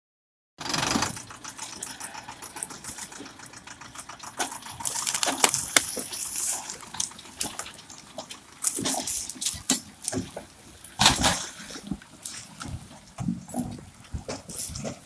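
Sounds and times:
tractor diesel engine running: 0.6 - 15.0
twigs snapping: 4.8 - 6.2
footsteps on dry forest litter: 4.8 - 6.7.

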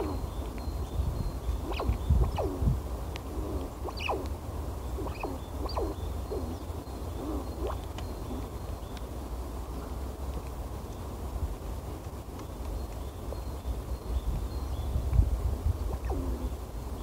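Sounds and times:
squirrels calling: 0.0 - 0.6, 1.5 - 8.5, 15.9 - 16.6.

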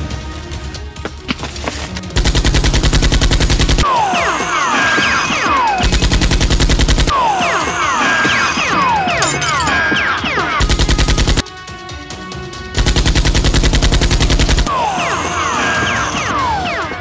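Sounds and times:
background music: 0.0 - 17.0
automatic gunfire: 2.2 - 3.8, 5.8 - 7.1, 10.6 - 11.4, 12.8 - 14.7.

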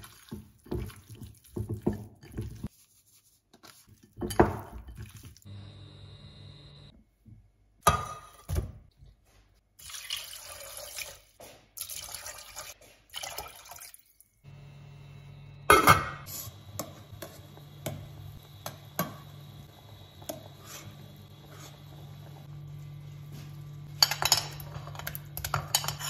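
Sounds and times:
water pouring into pot: 9.8 - 14.4
metal spoon stirring in pot: 23.8 - 26.0.

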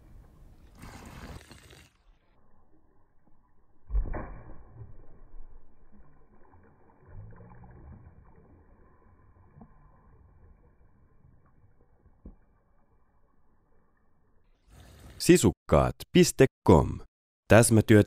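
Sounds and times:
water splash: 3.8 - 11.4
water sloshing in pool: 4.7 - 12.5.

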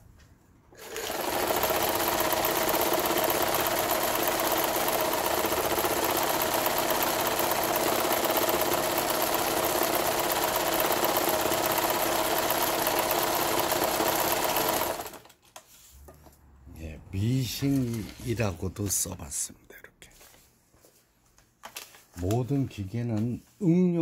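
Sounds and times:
sewing machine running: 0.8 - 15.3.

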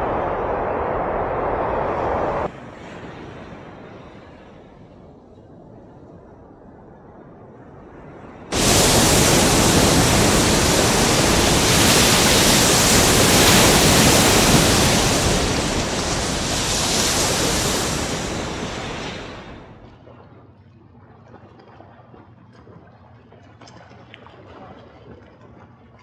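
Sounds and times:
loud rushing noise: 0.0 - 2.5, 8.5 - 19.8.

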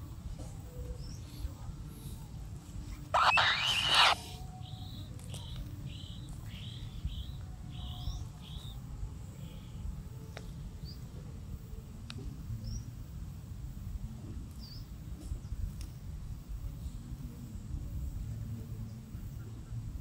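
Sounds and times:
bird chirps: 3.2 - 8.8.

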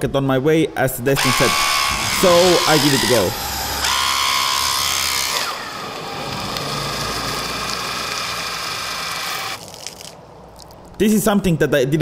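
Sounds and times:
motor-driven pump whining: 1.2 - 10.1.

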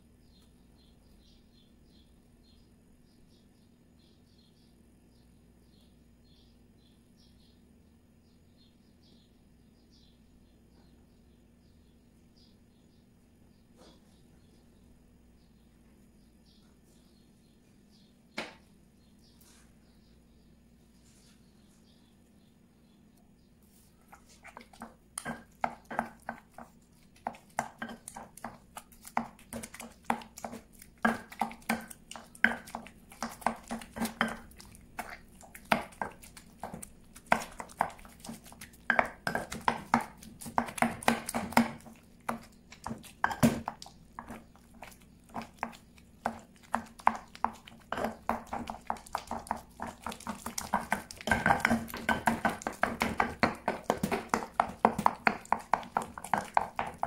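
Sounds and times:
stone pestle knocking and scraping: 24.4 - 57.0.

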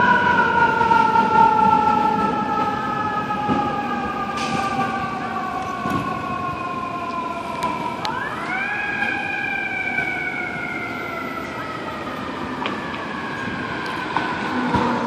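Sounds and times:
fire engine siren wailing: 0.0 - 15.0
street traffic: 0.0 - 15.0.

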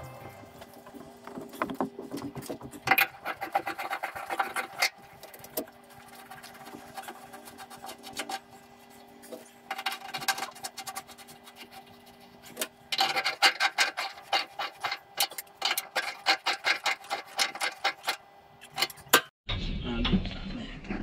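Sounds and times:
hand tool rasping on metal pipe: 9.7 - 19.0.

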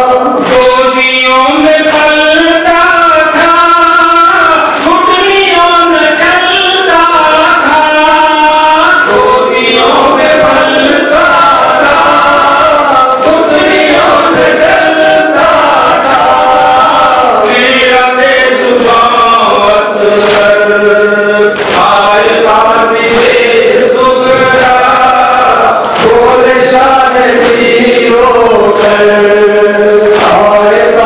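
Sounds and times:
men chanting through microphones: 0.0 - 31.0.

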